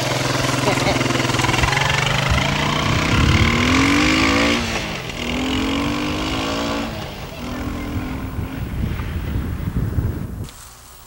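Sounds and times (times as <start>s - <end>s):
quad engine revving: 0.0s - 9.7s.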